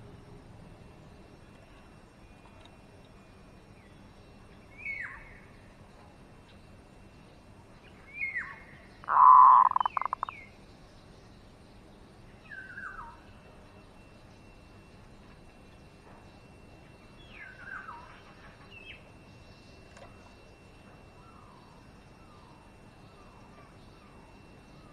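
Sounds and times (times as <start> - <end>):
dove stuttering coo: 9.1 - 10.3.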